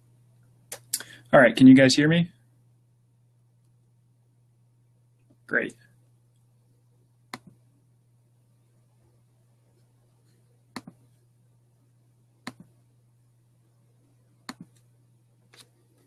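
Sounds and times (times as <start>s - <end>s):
low steady hum: 0.0s - 16.0s
computer mouse clicks: 7.3s - 7.6s, 10.7s - 11.1s, 12.4s - 12.7s, 14.5s - 14.9s.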